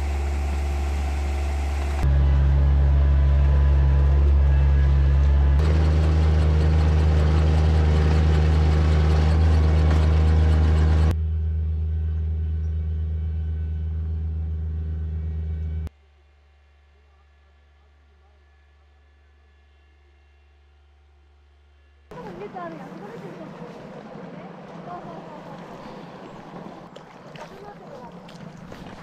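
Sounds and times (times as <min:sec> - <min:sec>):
transplanter engine running: 0:00.0 - 0:15.9, 0:22.1 - 0:29.0.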